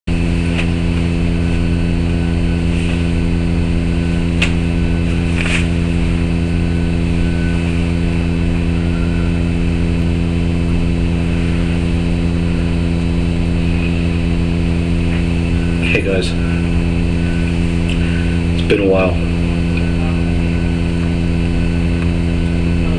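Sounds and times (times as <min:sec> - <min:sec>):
low electrical hum: 0:00.1 - 0:22.9.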